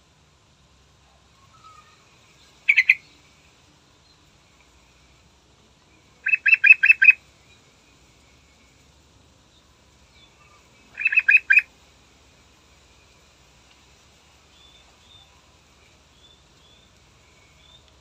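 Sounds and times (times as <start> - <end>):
bird calling: 1.4 - 3.2, 6.2 - 7.2, 10.2 - 11.7.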